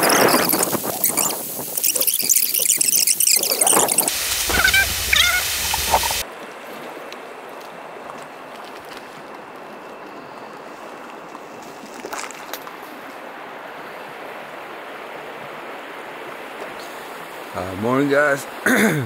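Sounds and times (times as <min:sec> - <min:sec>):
flowing river water: 0:00.0 - 0:19.0.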